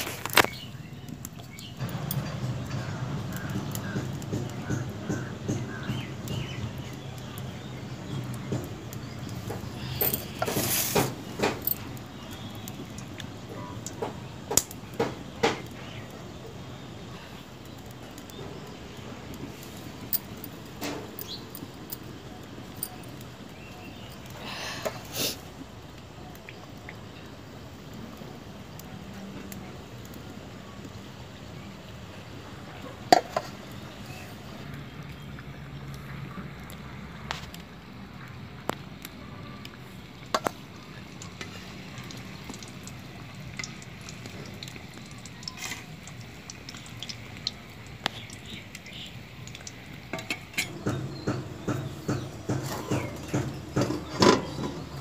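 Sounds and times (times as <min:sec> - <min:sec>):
short hiss: 0:10.2 - 0:11.2
food sizzling in hot oil: 0:39.8 - 0:51.9.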